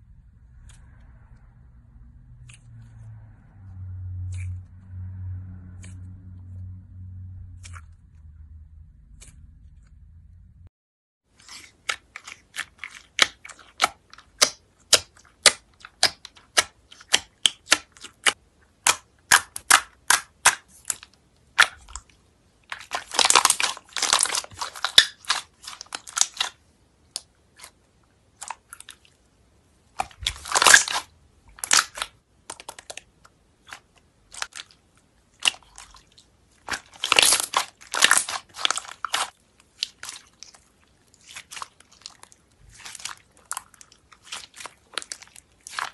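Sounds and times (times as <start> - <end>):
slime clicking and popping: 12.6 - 22.0
slime crackling: 22.7 - 29.1, 29.9 - 45.9.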